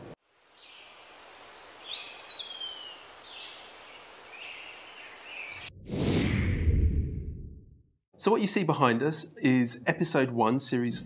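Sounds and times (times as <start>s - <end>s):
bird chirps: 1.6s - 3.6s, 4.4s - 5.7s.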